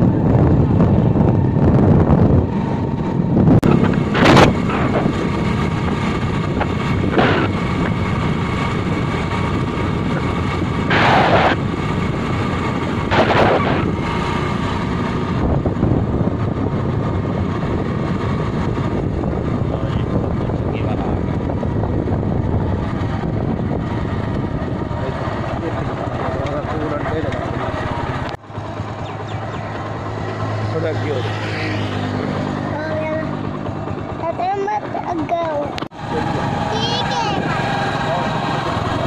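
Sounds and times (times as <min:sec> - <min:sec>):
wind noise on microphone: 0:00.0 - 0:26.0
motorcycle running: 0:00.0 - 0:39.0.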